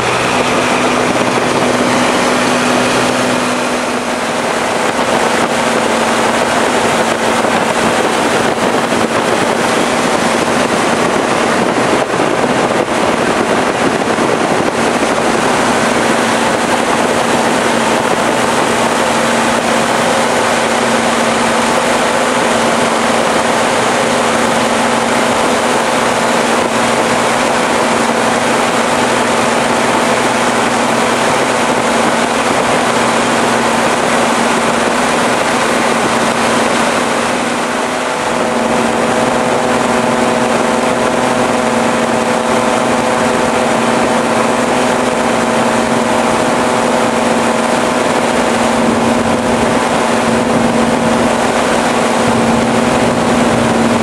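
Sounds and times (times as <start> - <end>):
propeller aircraft engine drone: 0.0 - 54.0
rushing air: 0.0 - 54.0.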